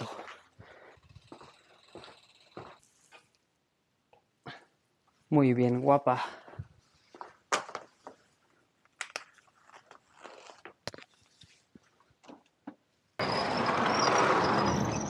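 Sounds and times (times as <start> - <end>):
high wavering squeak: 13.2 - 15.0.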